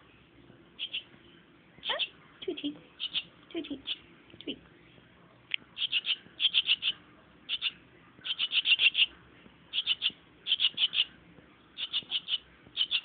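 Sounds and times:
young swallow begging chirps: 0:00.8 - 0:01.1, 0:03.0 - 0:04.0, 0:05.8 - 0:11.1, 0:11.8 - 0:13.0.

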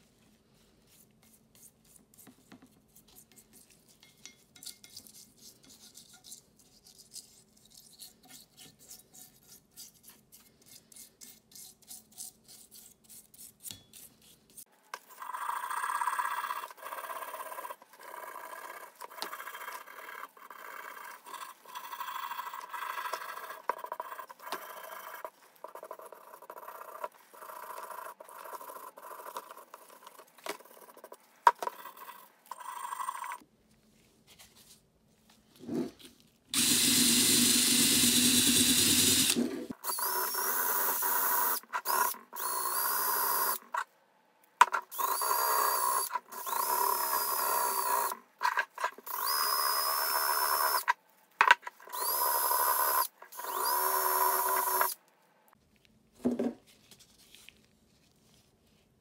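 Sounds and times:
drill wire brush whining: 0:36.6 - 0:43.6, 0:44.9 - 0:48.2, 0:49.0 - 0:50.9, 0:51.9 - 0:55.0.

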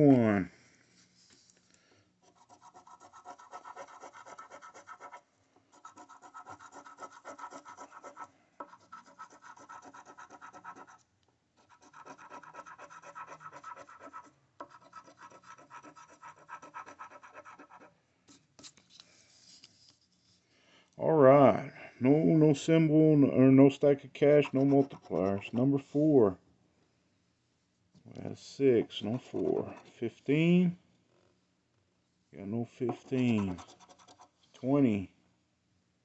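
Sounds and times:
coin scratching lottery ticket: 0:02.3 - 0:05.2, 0:05.8 - 0:11.0, 0:11.6 - 0:17.9, 0:24.4 - 0:25.5, 0:32.9 - 0:34.3.

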